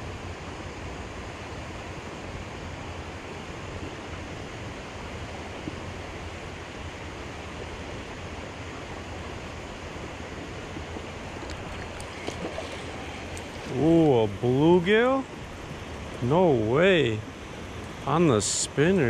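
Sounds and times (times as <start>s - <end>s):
river water rushing over dam: 11.1s - 19.0s
faint clicks: 11.4s - 13.7s.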